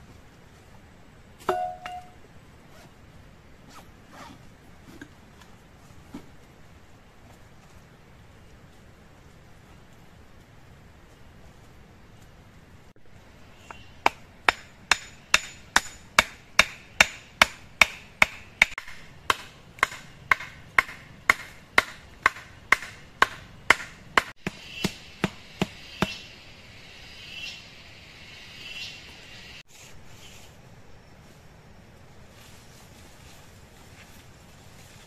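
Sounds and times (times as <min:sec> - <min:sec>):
hatchet hammering wooden stake: 0:01.4 - 0:02.2, 0:13.6 - 0:26.2.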